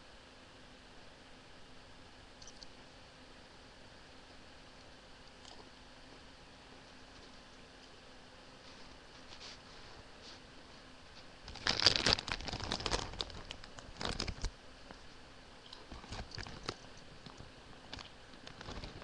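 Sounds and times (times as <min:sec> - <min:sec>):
chip bag crinkling: 0:11.4 - 0:14.5, 0:15.7 - 0:19.0.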